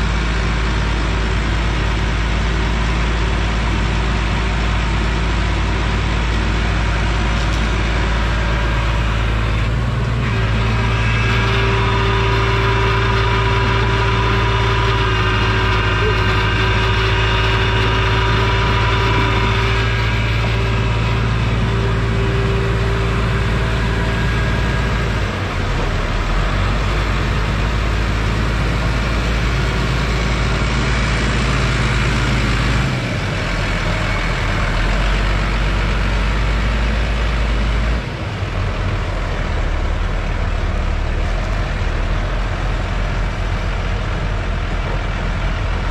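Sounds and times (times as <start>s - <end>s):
tractor engine under load: 0.0s - 45.9s
steady high tone: 7.8s - 33.2s.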